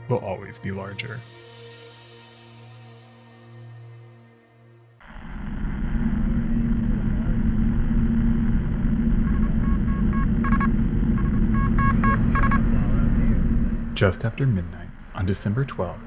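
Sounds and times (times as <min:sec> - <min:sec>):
muffled low rumble with hum: 0:05.0 - 0:16.0
short electronic beeps: 0:09.3 - 0:12.7.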